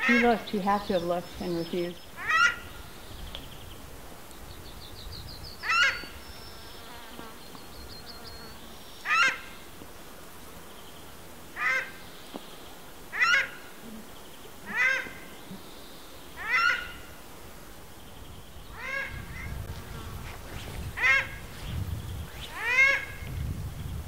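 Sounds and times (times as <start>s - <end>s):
bird honking calls: 0.0s - 2.8s, 14.7s - 15.7s, 16.4s - 17.2s.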